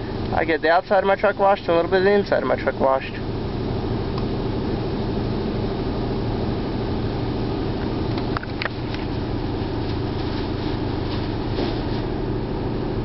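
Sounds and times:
car wash water spray rumble: 0.0s - 13.0s
low steady hum: 0.0s - 13.0s.

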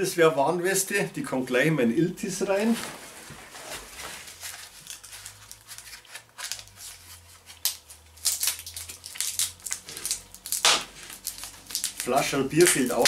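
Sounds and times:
rustling of packing and box: 2.5s - 7.6s.

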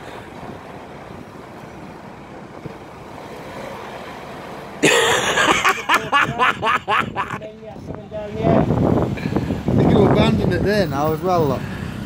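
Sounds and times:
van engine running: 0.0s - 12.0s
loud laughter: 4.8s - 7.4s.

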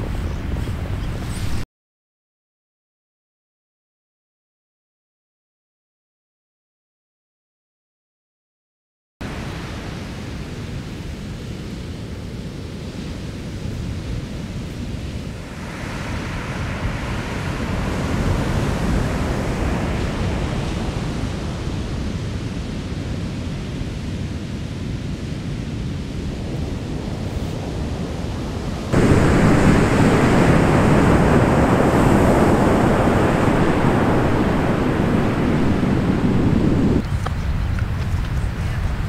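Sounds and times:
surf breaking on sand beach: 9.2s - 23.8s, 26.1s - 39.0s.

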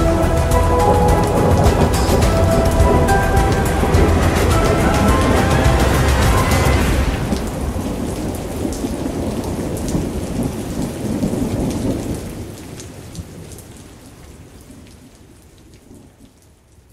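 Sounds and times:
thunder rumbling: 0.0s - 12.6s
steady rain: 0.0s - 16.9s.

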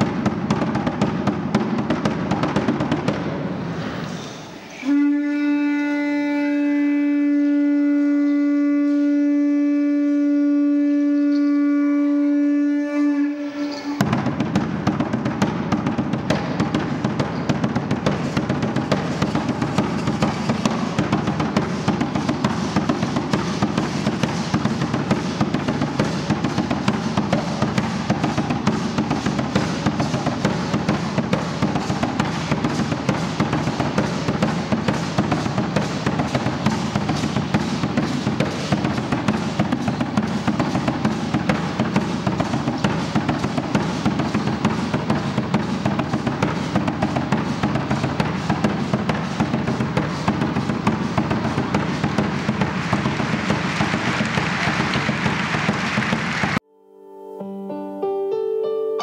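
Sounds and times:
drumming with rattles: 0.0s - 3.6s, 13.6s - 56.6s
conch shell trumpet note: 4.7s - 14.5s.

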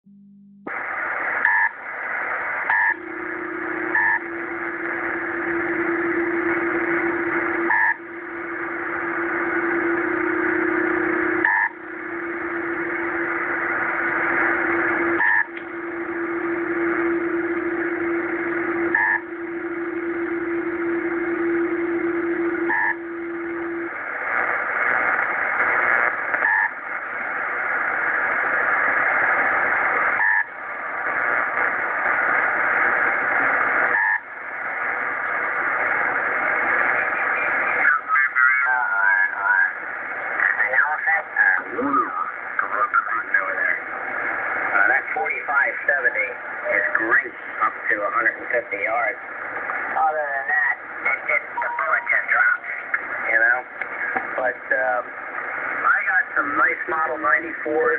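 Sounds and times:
steady low tone: 0.0s - 37.8s
radio band hiss: 0.7s - 57.9s.

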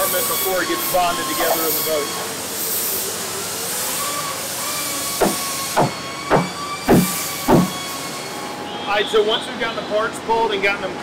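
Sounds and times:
workshop hiss: 0.0s - 8.7s
hammer blows: 5.2s - 7.8s.

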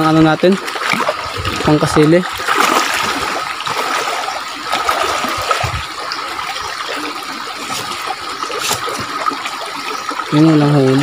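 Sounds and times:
splashes of wading: 0.0s - 11.0s
stream running and trickling: 0.0s - 11.0s.

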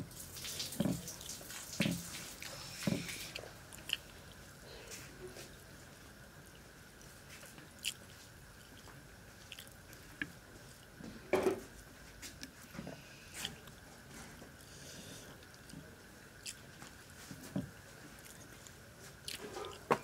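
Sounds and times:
chewing: 0.7s - 5.5s, 6.5s - 10.9s, 15.3s - 17.5s, 18.1s - 20.0s.

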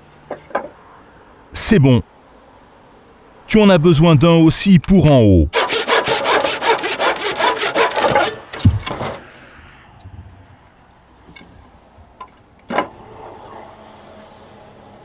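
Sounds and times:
handsaw cutting wood: 5.5s - 9.0s
wood knock: 8.0s - 9.2s
heavy thud: 8.1s - 9.3s.

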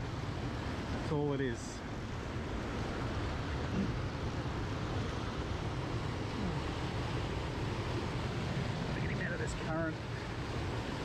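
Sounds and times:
river water running: 0.0s - 11.0s.

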